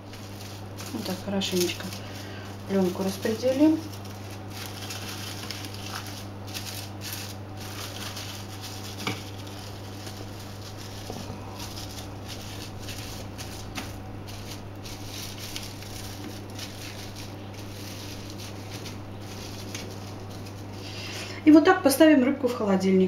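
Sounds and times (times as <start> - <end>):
cling film crinkling: 0.0 - 21.2
steady low hum: 0.0 - 23.0.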